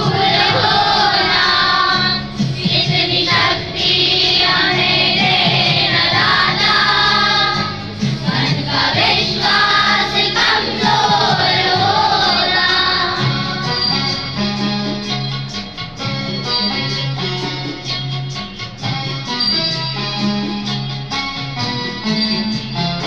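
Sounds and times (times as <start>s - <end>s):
boys singing in unison: 0.0s - 14.0s.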